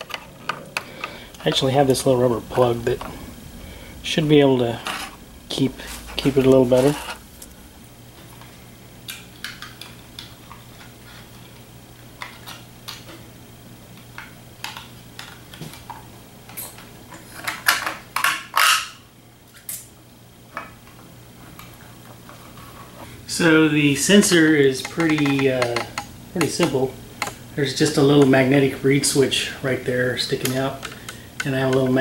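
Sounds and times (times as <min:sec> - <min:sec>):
low steady hum: 0:00.0 - 0:32.0
scraping rustles: 0:05.8 - 0:07.3.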